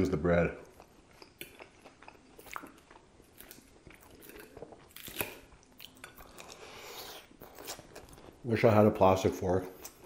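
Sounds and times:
crunchy lettuce chewing: 0:00.7 - 0:08.4.

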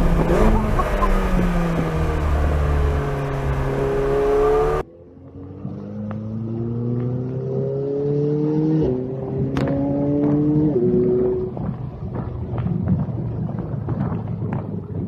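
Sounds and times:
car engine accelerating from inside cabin: 0:00.0 - 0:11.7.

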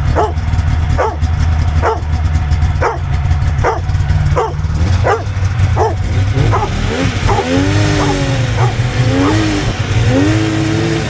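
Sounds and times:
snowmobile engine revving: 0:00.0 - 0:11.0
dog barking: 0:00.1 - 0:00.4, 0:01.0 - 0:01.2, 0:01.8 - 0:02.1, 0:02.8 - 0:09.5.

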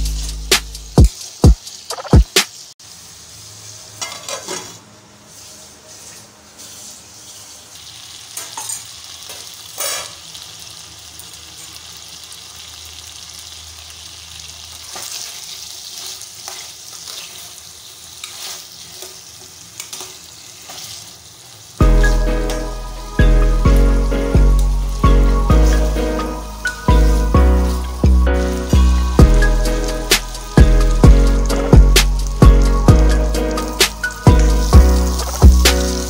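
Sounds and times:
chicken sizzling in oil: 0:00.0 - 0:36.0
spatula scraping pan: 0:04.0 - 0:07.6, 0:14.9 - 0:21.1.

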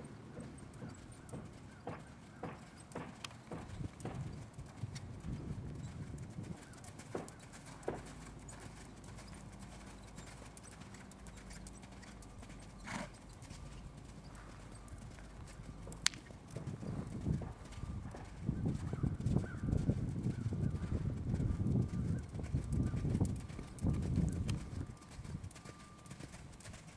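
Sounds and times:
horse hoofbeats on sand: 0:00.3 - 0:26.9.

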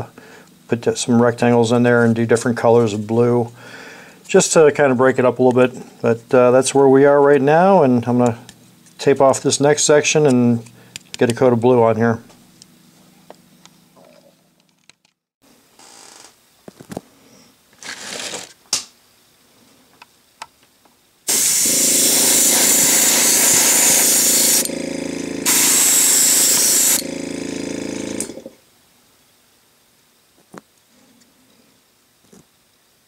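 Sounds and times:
compressor humming: 0:00.0 - 0:13.8, 0:21.3 - 0:28.6
airbrush hissing: 0:21.3 - 0:27.1.

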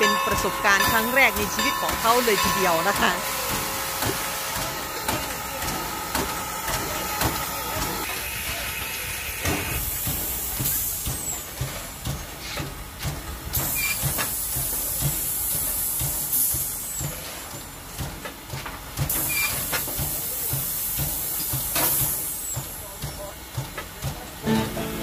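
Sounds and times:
steam hissing in bursts: 0:00.0 - 0:25.0.

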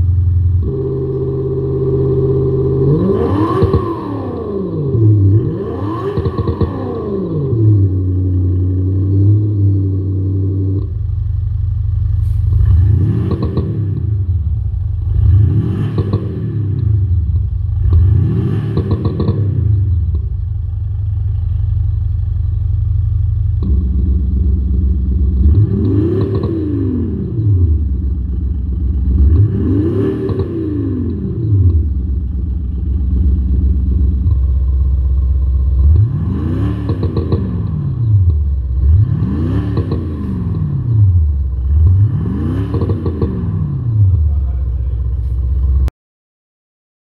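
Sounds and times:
engine idling: 0:00.0 - 0:03.2, 0:07.8 - 0:15.6, 0:16.6 - 0:18.2, 0:19.0 - 0:25.8, 0:27.1 - 0:29.6, 0:30.9 - 0:36.4, 0:43.5 - 0:45.9
synthetic engine revving: 0:00.6 - 0:08.0, 0:29.1 - 0:32.0, 0:35.8 - 0:45.0.

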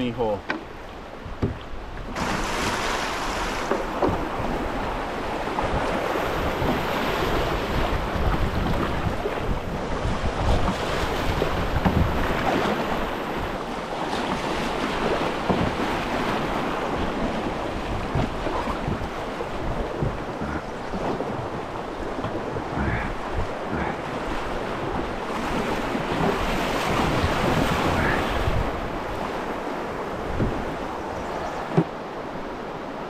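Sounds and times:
rushing river water: 0:00.0 - 0:33.0
wind buffeting microphone: 0:01.2 - 0:31.9.

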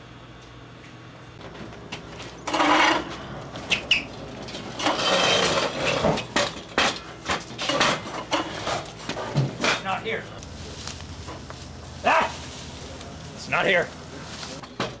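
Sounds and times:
wooden furniture clattering and scraping: 0:01.4 - 0:09.9.

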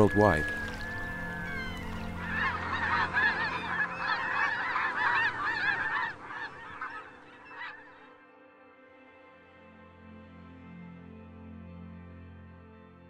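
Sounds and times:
waterbirds calling: 0:00.0 - 0:08.2.

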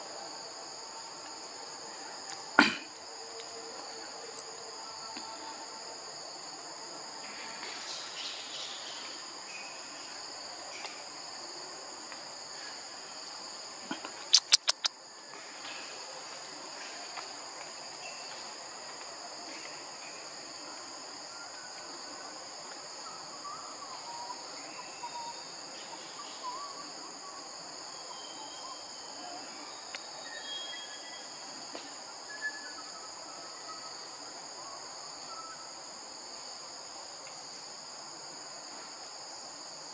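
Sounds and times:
insects droning: 0:00.0 - 0:39.9
bird chirps: 0:14.3 - 0:14.9
sharp clicks: 0:14.3 - 0:15.0.

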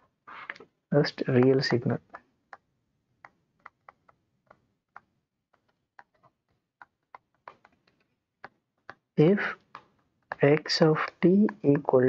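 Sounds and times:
stylus pen ticking on tablet: 0:02.5 - 0:07.8, 0:09.7 - 0:11.9.

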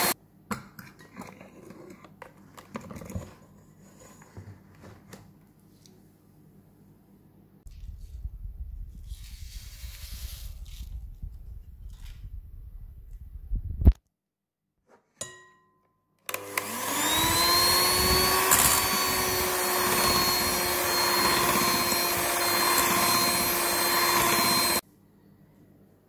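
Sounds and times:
electric hand mixer motor: 0:16.3 - 0:24.8.

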